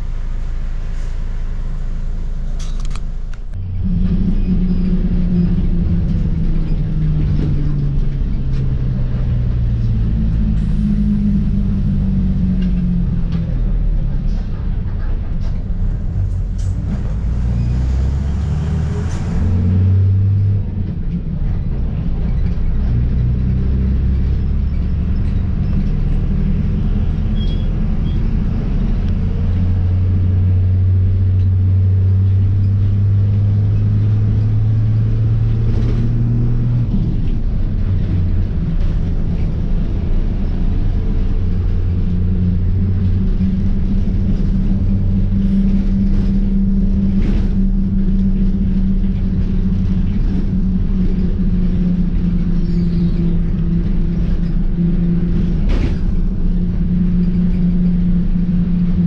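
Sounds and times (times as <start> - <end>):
bus diesel engine rumble: 0.0 - 59.0
road noise: 0.0 - 59.0.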